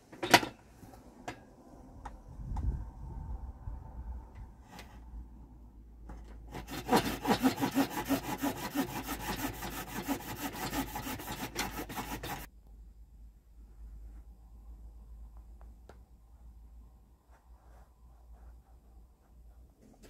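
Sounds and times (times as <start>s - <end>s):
hand saw cutting wood: 6.5s - 12.5s.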